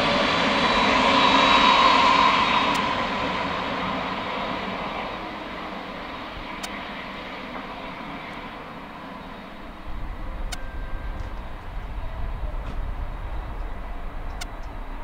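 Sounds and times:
jet engine whine: 0.0 - 15.0
low rumble: 9.6 - 15.0.

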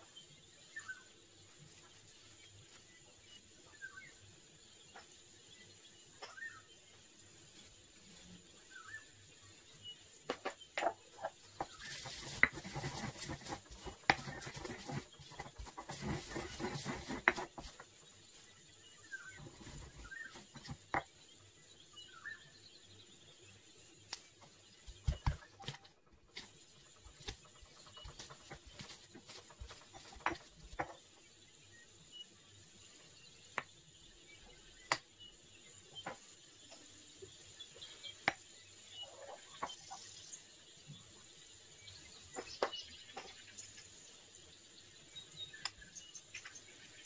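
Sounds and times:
bird chirps: 0.1 - 1.2, 4.8 - 7.0, 8.2 - 32.3.

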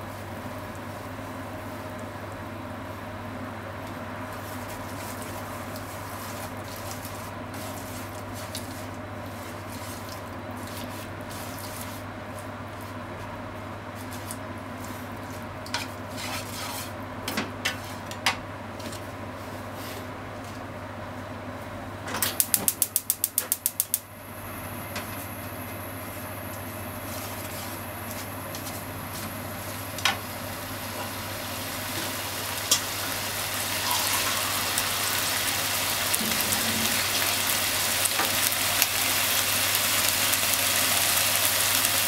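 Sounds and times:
stove igniter clicking: 22.2 - 24.1
gas burner hiss: 22.4 - 42.0
meat sizzling in a frying pan: 29.6 - 42.0.

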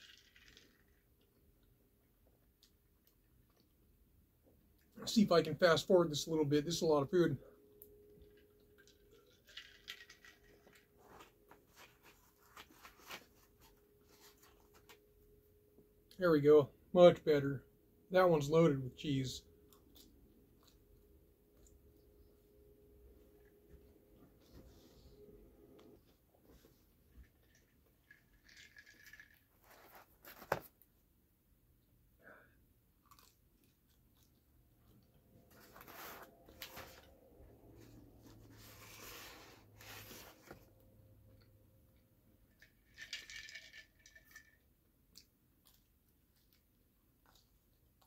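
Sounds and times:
tabletop handling noises: 35.5 - 37.2, 37.8 - 40.7.

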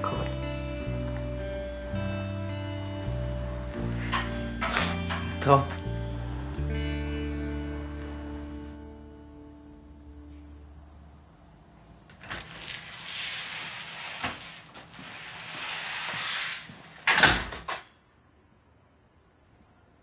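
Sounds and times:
glass door opening: 3.4 - 5.8, 12.0 - 17.9
door clicks: 12.1 - 13.2, 16.8 - 17.9.

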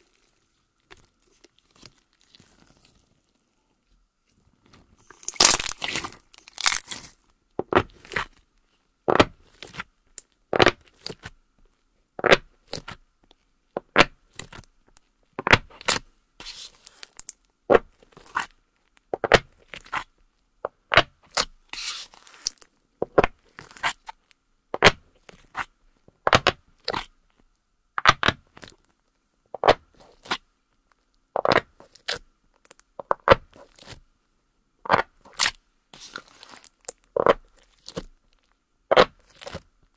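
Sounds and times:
slime squishing: 0.0 - 3.4, 4.4 - 8.4, 34.8 - 39.7.

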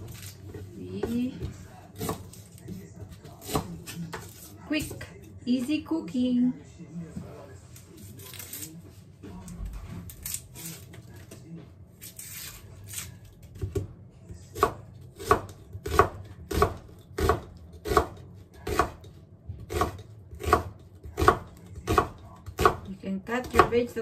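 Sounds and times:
knife chopping on wooden board: 0.2 - 5.0, 14.6 - 23.9
onion skin rustling: 8.0 - 8.9.

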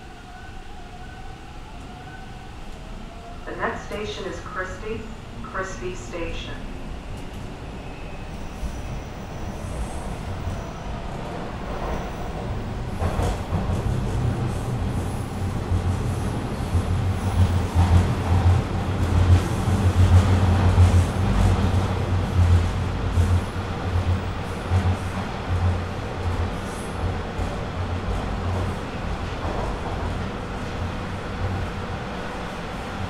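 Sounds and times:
train wheels rolling on rails: 8.2 - 32.8.

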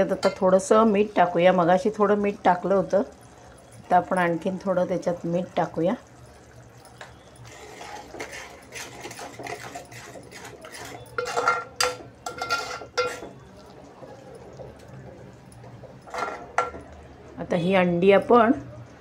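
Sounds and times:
spoon clinking against pot: 0.0 - 1.1, 6.8 - 13.5, 14.5 - 17.0
spoon stirring gravy in pot: 6.2 - 17.1.

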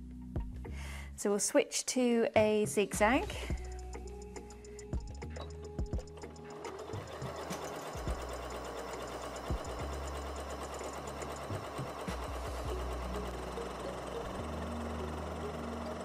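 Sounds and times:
sewing machine motor hum: 3.5 - 16.0
sewing machine needle chatter: 6.0 - 16.0.

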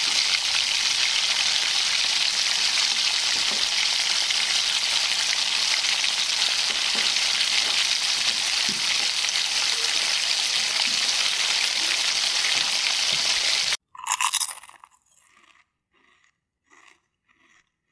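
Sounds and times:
hot oil sizzling: 0.0 - 13.8.

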